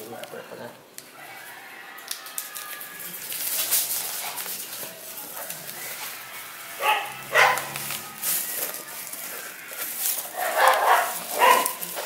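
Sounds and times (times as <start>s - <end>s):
bubble wrap crinkling: 0.0s - 12.0s.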